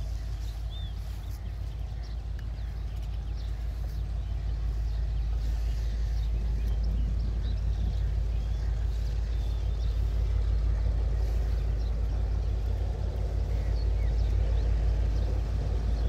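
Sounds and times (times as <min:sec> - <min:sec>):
diesel locomotive engine rumble: 0:00.0 - 0:16.0.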